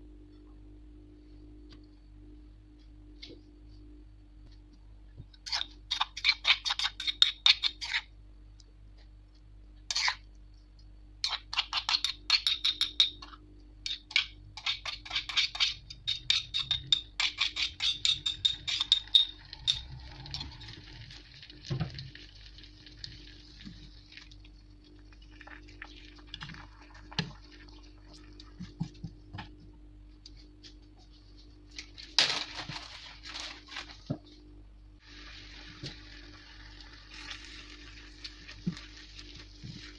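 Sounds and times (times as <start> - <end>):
metal spoon scraping a mortar: 5.4 - 8.1, 9.9 - 10.2, 11.2 - 20.5
paste sizzling in a frying pan: 35.0 - 39.9.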